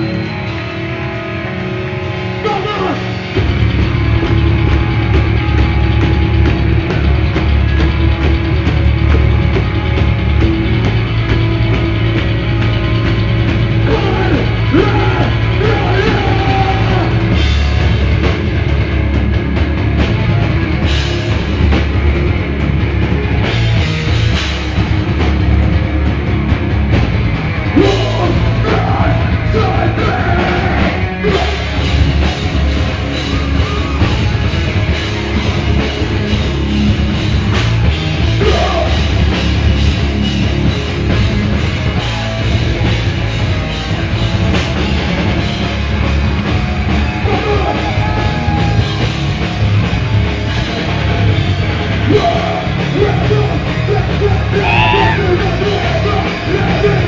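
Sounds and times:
distorted electric guitar: 0.0s - 57.0s
pounding drum kit: 0.0s - 57.0s
person shouting vocals: 13.9s - 17.1s, 52.1s - 57.0s.

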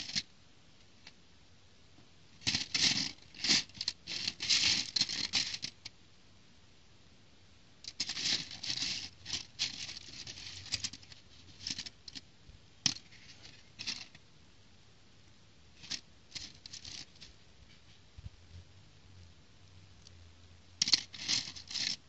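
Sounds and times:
plastic bricks clicking and rattling: 20.8s - 22.0s.

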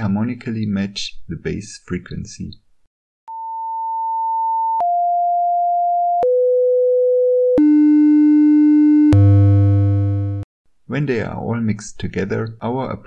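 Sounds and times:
pure sine tones: 7.6s - 10.4s.

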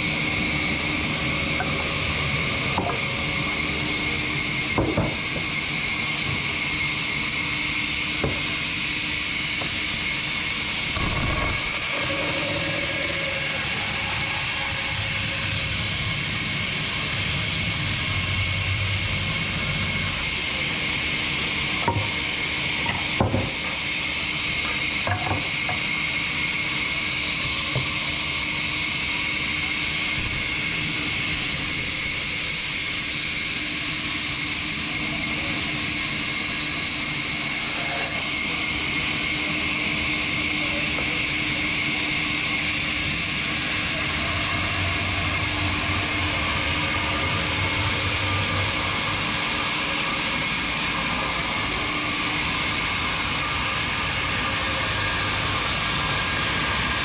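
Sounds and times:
band saw cutting timber: 20.2s - 57.0s.

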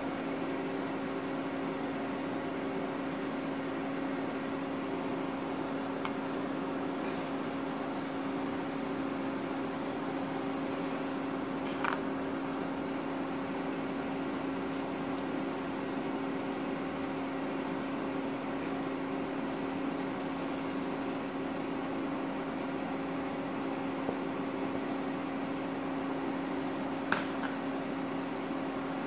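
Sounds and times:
even hiss: 0.0s - 22.7s
steady mechanical hum: 0.0s - 29.0s.

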